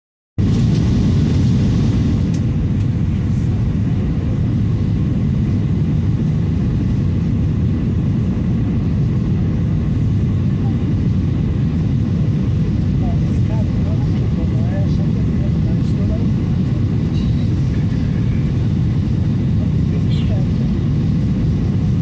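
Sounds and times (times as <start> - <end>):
air rushing past: 0.4 - 2.8
low engine rumble: 0.4 - 22.0.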